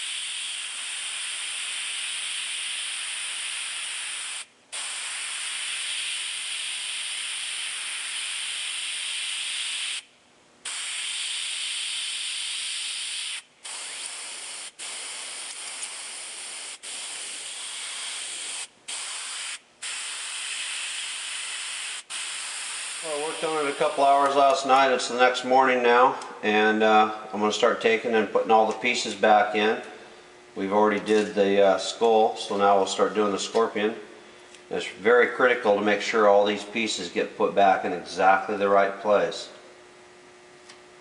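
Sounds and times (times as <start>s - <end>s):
airbrush spraying air hiss: 0.0s - 24.4s.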